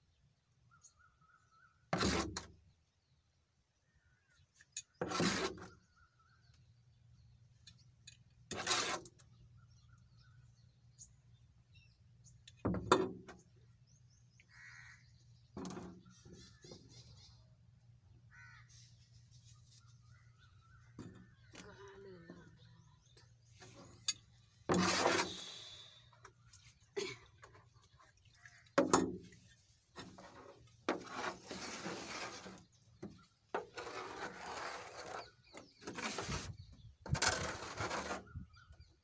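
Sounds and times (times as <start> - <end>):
metal ladle scraping a pan: 8.5 - 9.2, 23.6 - 25.7.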